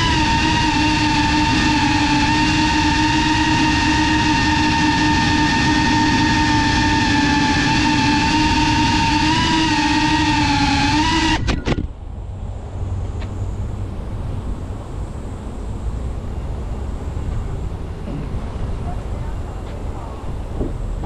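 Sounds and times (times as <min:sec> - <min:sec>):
drone propellers whining: 0:00.0 - 0:21.0
rushing air rumble: 0:11.8 - 0:21.0.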